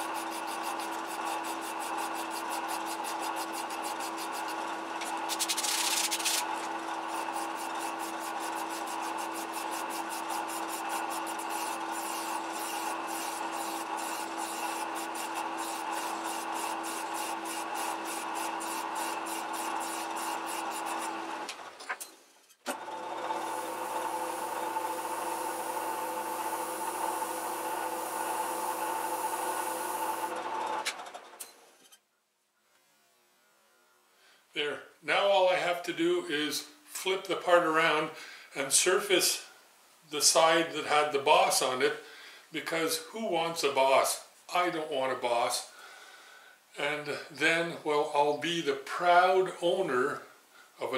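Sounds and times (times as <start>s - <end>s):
file stroking spinning metal: 0.0s - 21.5s, 22.8s - 30.8s
lathe humming: 0.0s - 21.8s, 22.7s - 31.0s.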